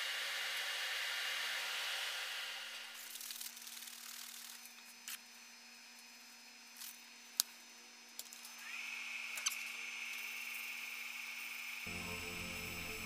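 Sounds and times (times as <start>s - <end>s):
lathe motor whine: 8.4s - 13.0s
lathe humming: 11.8s - 13.0s.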